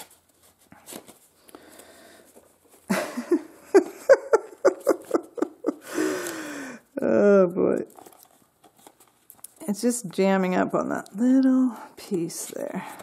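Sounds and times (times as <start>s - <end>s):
paper rustling and clicking: 0.0s - 2.9s, 7.8s - 9.7s.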